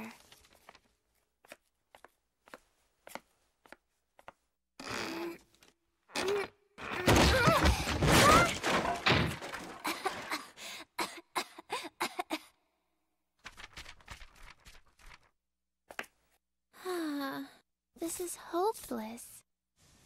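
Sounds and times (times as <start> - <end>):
girl coughing: 11.0 - 12.6.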